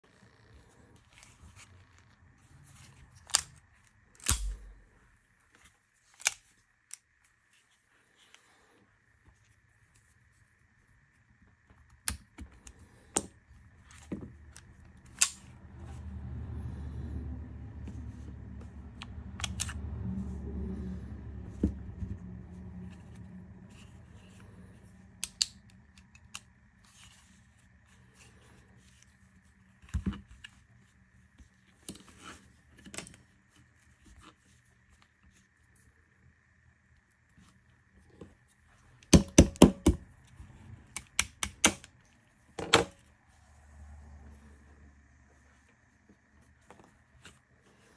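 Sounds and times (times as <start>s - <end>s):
pistol parts clicking: 4.2s - 4.8s, 14.5s - 15.5s, 25.2s - 26.5s
low handling rumble: 14.4s - 25.1s.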